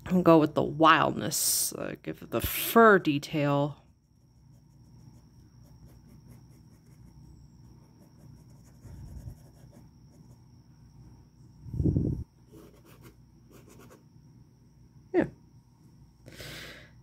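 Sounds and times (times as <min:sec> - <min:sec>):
pen scratching on paper: 0:04.4 - 0:10.4, 0:12.5 - 0:14.0.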